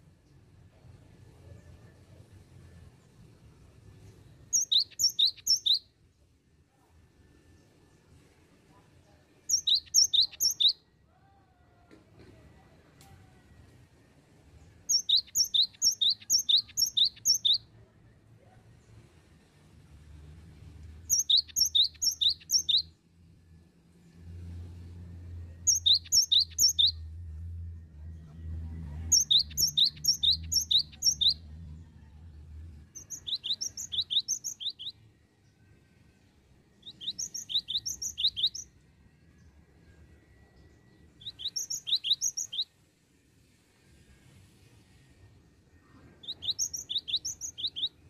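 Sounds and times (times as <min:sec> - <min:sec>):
bird singing whistled notes: 0:04.4 - 0:05.9, 0:09.4 - 0:10.9, 0:14.8 - 0:17.7, 0:21.1 - 0:23.0, 0:25.5 - 0:27.2, 0:29.0 - 0:31.6, 0:32.9 - 0:35.1, 0:36.8 - 0:40.0, 0:40.6 - 0:42.8, 0:46.2 - 0:48.0.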